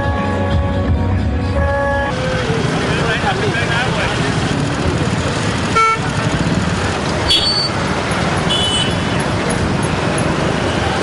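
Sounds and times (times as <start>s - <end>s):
motorcycle engines rumbling: 0.0s - 11.0s.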